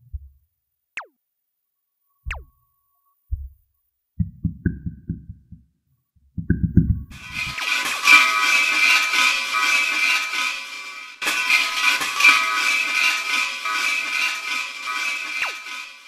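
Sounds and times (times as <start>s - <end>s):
soft low thuds: 0.0s - 0.5s, 3.3s - 7.2s.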